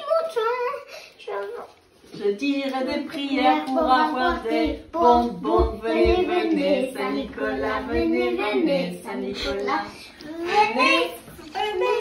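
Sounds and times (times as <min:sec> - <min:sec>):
girl singing unaccompanied: 0:00.0 - 0:12.0.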